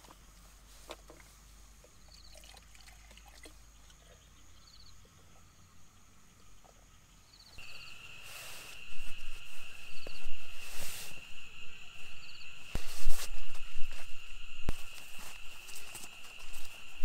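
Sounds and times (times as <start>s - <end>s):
high insect trill: 1.0s - 17.0s
short insect chirps: 1.9s - 17.0s
sleeping bag rustling: 7.6s - 17.0s.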